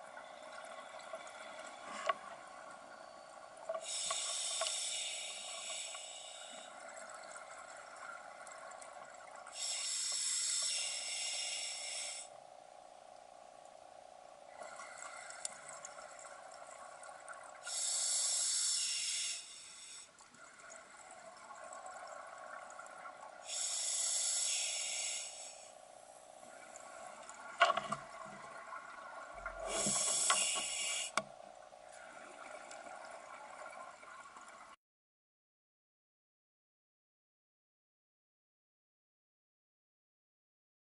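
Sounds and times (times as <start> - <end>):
faint steady hum: 0.0 - 34.8
diver breathing through regulator: 3.8 - 6.7, 9.6 - 12.3, 17.7 - 20.1, 23.5 - 25.8, 29.6 - 31.2.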